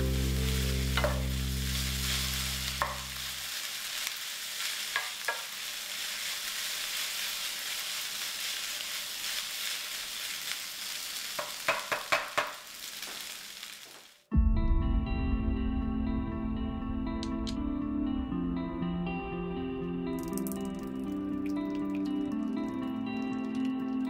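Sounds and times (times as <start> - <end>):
low background music: 0.0 - 3.3, 14.3 - 24.0
rice sizzling in a hot pan: 0.0 - 14.3
wooden spatula knocking on pan: 1.0 - 1.2, 2.8 - 3.0, 11.4 - 12.6.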